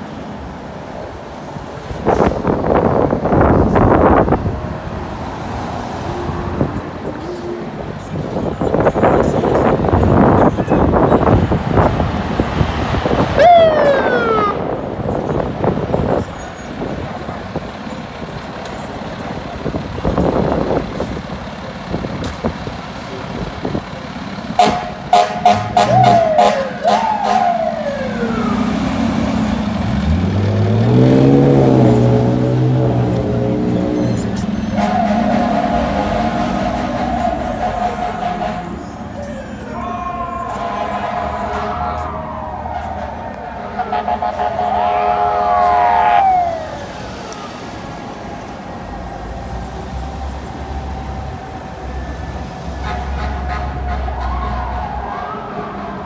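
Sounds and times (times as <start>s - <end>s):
traffic noise: 0.0s - 56.0s
siren winding down: 13.4s - 14.7s, 26.0s - 29.3s
fire truck diesel engine revving: 17.1s - 39.1s
fire truck air horn blast: 24.6s - 27.6s, 34.7s - 38.9s, 40.5s - 46.4s, 52.8s - 54.8s
steady siren tone: 40.4s - 52.9s.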